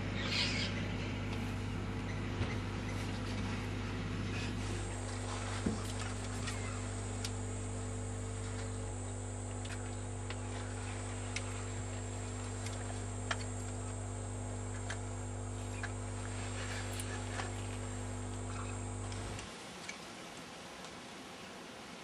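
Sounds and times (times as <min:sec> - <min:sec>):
steady low hum: 0:00.0 - 0:22.0
small clicks: 0:12.4 - 0:13.9.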